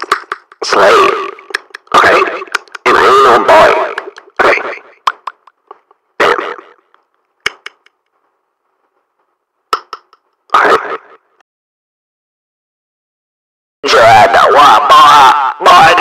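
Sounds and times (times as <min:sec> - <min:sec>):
sharp clicks: 0:00.0 - 0:00.7, 0:01.3 - 0:03.0, 0:03.8 - 0:06.0, 0:06.9 - 0:08.1, 0:09.7 - 0:10.6
person making vocal outbursts: 0:00.1 - 0:05.3, 0:13.8 - 0:16.0.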